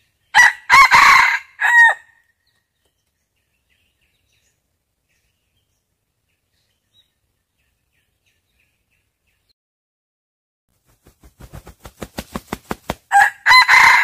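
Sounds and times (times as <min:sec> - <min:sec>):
small birds chirping: 0:00.0 - 0:00.4, 0:02.3 - 0:09.6.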